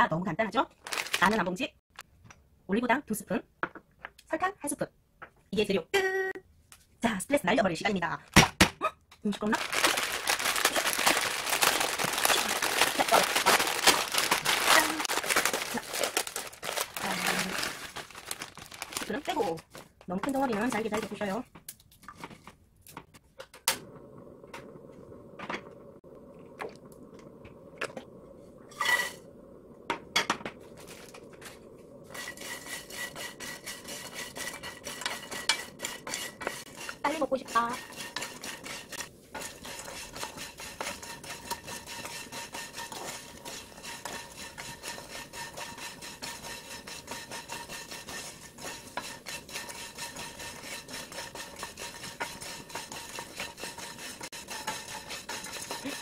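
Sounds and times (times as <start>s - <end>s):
dry noodles scraping in frying pan: 9.5s - 21.4s, 28.6s - 29.3s, 30.6s - 56.0s.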